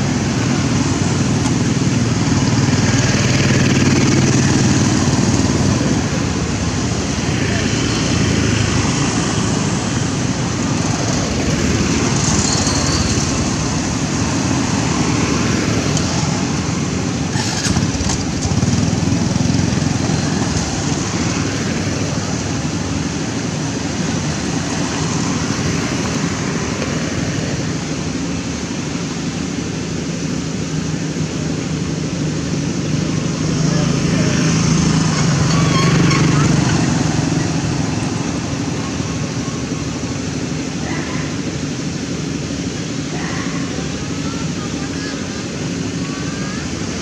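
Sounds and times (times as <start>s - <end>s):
motorcycle engine: 0.0s - 28.4s, 32.1s - 39.9s
road traffic noise: 0.0s - 47.0s.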